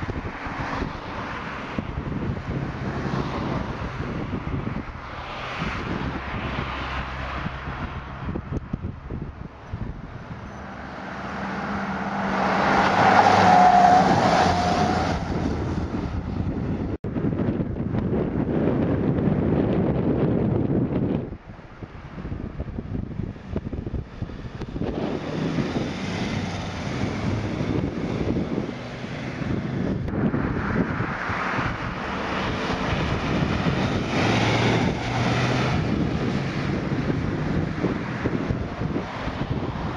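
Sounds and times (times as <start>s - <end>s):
vehicle passing at speed: 0.0s - 21.3s, 21.9s - 39.9s
wind buffeting microphone: 0.0s - 39.9s
van driving past: 23.2s - 39.9s.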